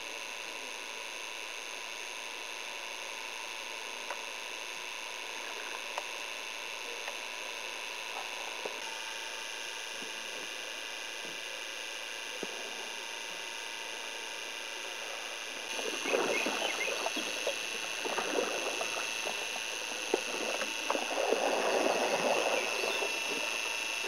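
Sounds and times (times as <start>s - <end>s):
faint high-pitched whines: 0.0s - 24.0s
camcorder hiss: 11.5s - 24.0s.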